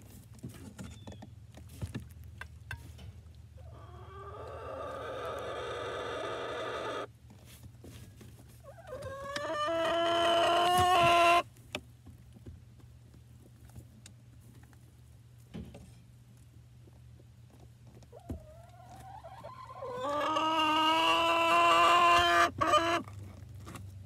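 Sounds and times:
faint chicken clucks: 3.5 - 7.1, 8.4 - 11.5, 16.4 - 23.4
chicken long rising call: 3.6 - 7.1, 18.9 - 23.0.

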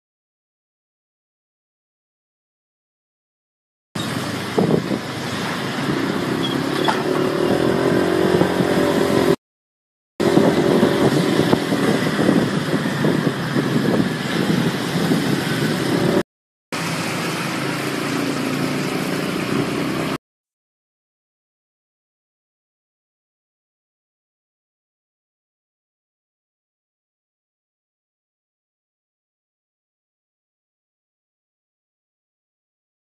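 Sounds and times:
vehicle engines in street traffic: 4.0 - 9.4, 10.2 - 16.2, 16.8 - 20.2.

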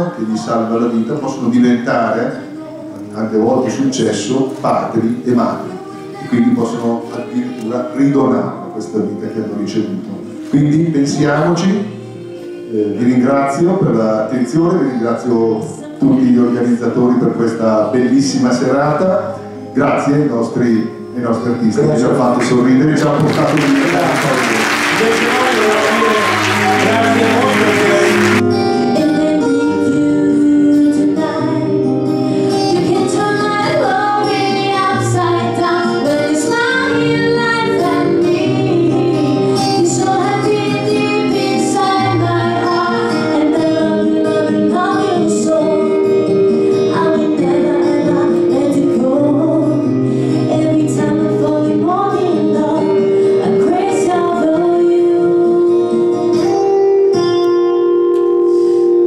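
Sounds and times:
musical accompaniment: 0.0 - 59.0
woman singing into a microphone: 2.2 - 3.6, 5.2 - 9.6, 15.0 - 18.9, 28.4 - 57.5
audience applause: 23.1 - 28.4.

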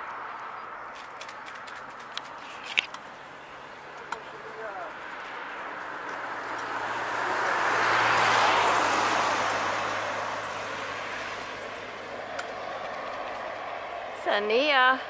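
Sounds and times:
vehicle driving past: 3.2 - 15.0.

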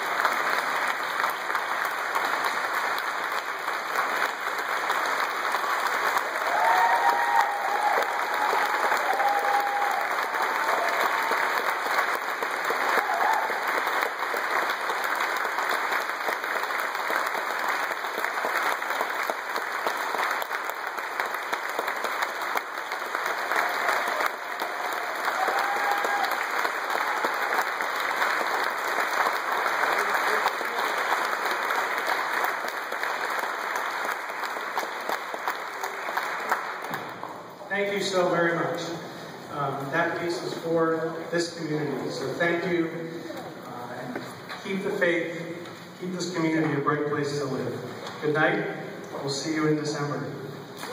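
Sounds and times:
audience applauding: 0.0 - 37.7.

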